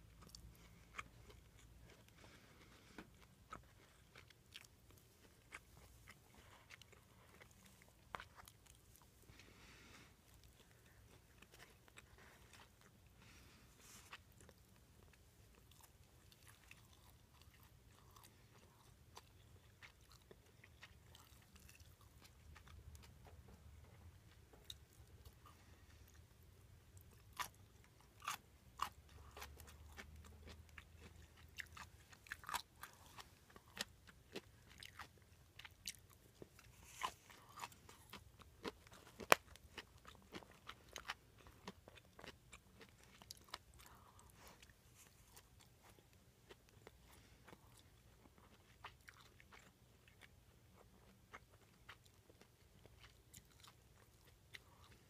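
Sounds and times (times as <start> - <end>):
chewing and crunching: 0.0 - 55.0.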